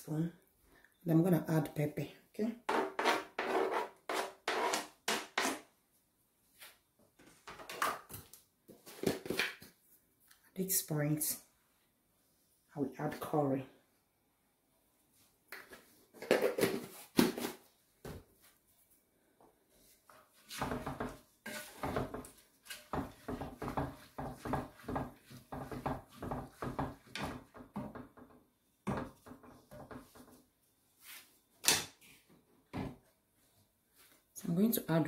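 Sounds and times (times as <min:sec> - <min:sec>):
wooden spoon scraping a pot: 0:02.6 - 0:05.7, 0:19.9 - 0:28.3.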